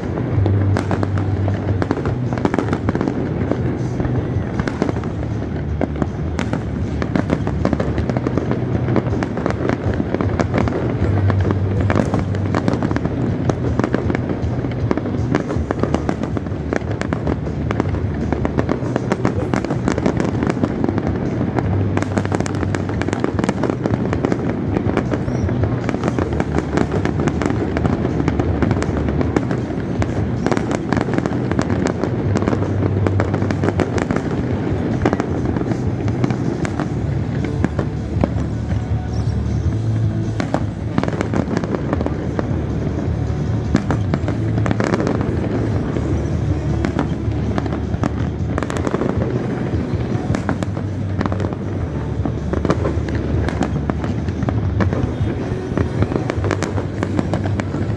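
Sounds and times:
fireworks bangs and crackling: 0.0s - 57.9s
music playing: 0.0s - 57.9s.

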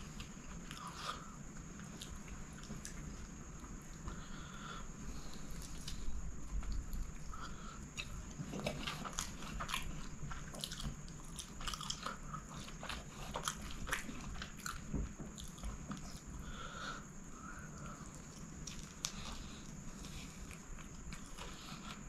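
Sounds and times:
chewing and lip-smacking: 7.9s - 16.4s, 17.8s - 22.0s.

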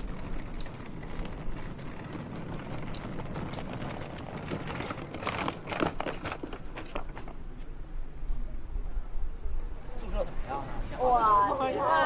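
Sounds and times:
quick clacks: 0.0s - 7.4s
wheeled suitcases rolling over paving: 0.0s - 7.6s.

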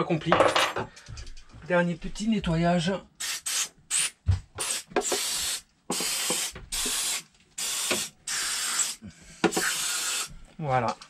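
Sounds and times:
aerosol spray can hissing: 3.2s - 10.4s.

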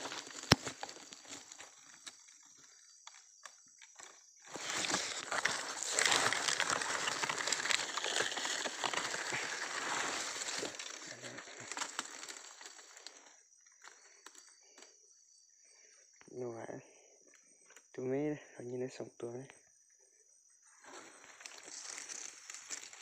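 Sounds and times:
dry leaves rustling and crackling: 0.0s - 2.6s, 4.4s - 13.2s, 20.9s - 23.0s
high insect trill: 0.0s - 23.0s.

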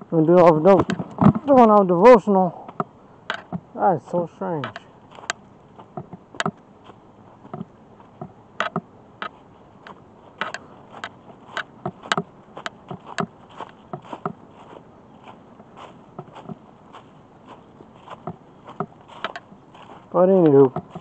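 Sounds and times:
footsteps crunching dry leaves: 4.6s - 6.0s, 6.7s - 8.2s, 9.3s - 21.0s.

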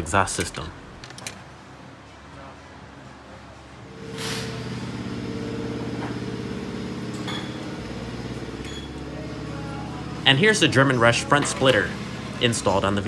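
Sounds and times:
machine pulsing hum: 3.8s - 13.0s.

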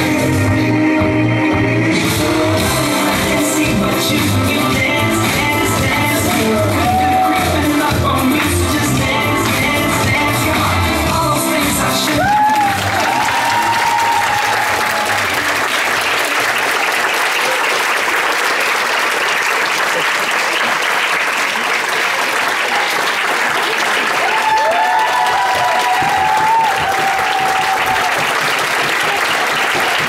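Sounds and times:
dance music: 0.0s - 16.4s
crowd applauding: 5.8s - 9.6s, 10.3s - 30.0s
high cheers: 6.6s - 7.7s, 12.1s - 18.1s, 22.5s - 30.0s.

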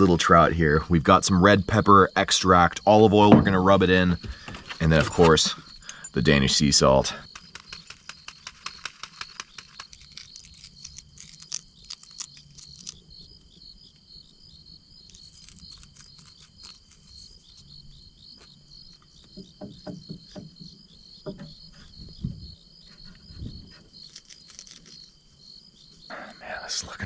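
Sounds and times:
crickets chirping: 0.0s - 27.0s
soft low knocks: 3.2s - 4.7s.

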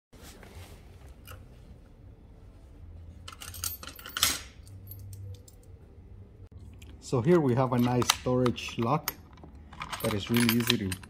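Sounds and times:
lock and keys clinking: 3.3s - 5.8s, 7.3s - 11.0s.

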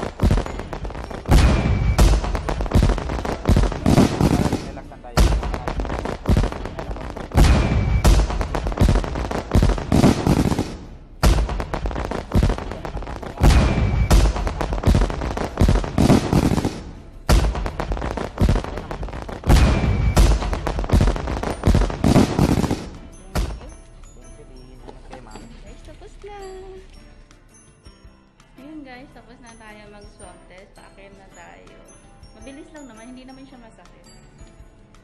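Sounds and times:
fireworks bangs and crackling: 0.0s - 24.1s.

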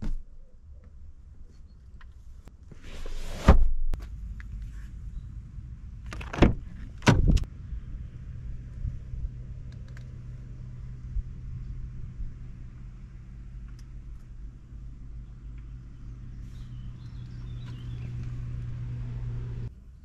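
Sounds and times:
car door thudding shut: 6.3s - 7.5s
steady low hum: 7.4s - 20.0s.

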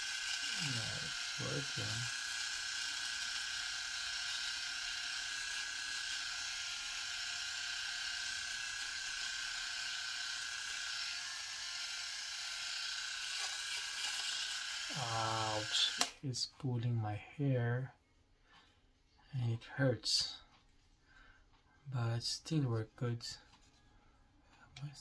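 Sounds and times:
electric shaver buzzing: 0.0s - 16.2s.

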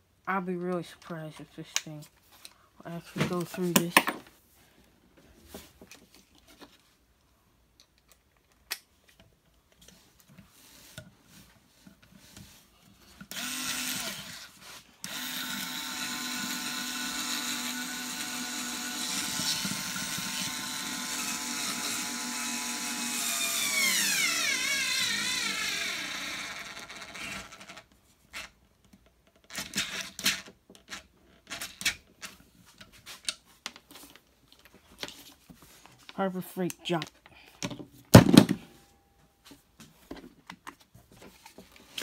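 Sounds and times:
electric screwdriver whirring: 13.3s - 27.8s.

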